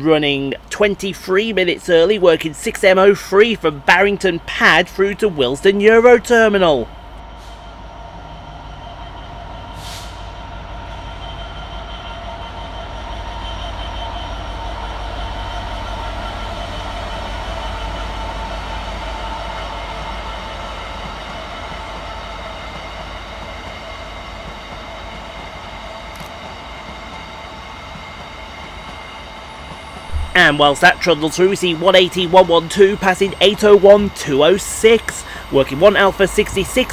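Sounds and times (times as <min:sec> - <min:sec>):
freight train rolling past: 0:26.8 - 0:36.9.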